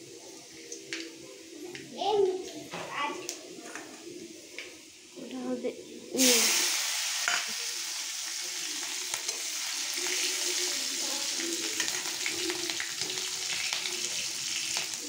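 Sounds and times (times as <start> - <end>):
oil sizzling in a pan: 6.1 - 15.0.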